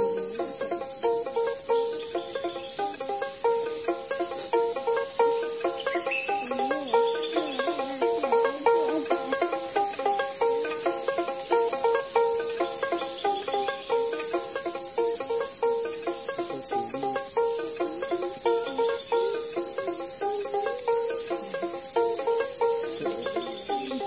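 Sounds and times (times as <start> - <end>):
insects chirring: 0.0 - 24.0
plucked instrument rhythmic pattern: 0.0 - 24.0.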